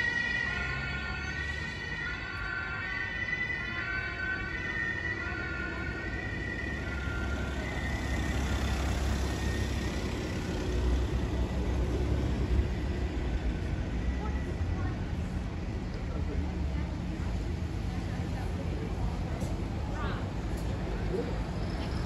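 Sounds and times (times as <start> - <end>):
two-tone siren: 0.0 - 10.7
vehicle rumble: 0.0 - 22.0.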